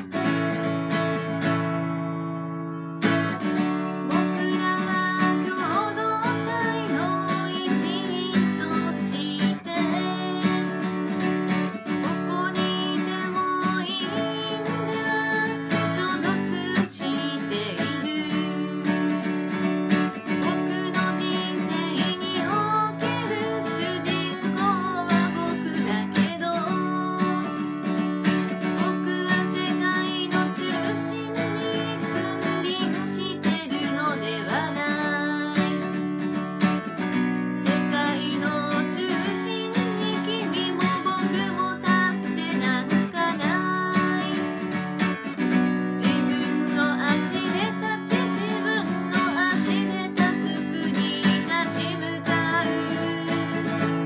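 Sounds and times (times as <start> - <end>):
strummed acoustic guitar: 0.0 - 54.0
person singing: 2.4 - 11.2, 11.8 - 19.3, 20.1 - 27.8, 28.5 - 36.0, 37.6 - 44.8, 46.0 - 54.0.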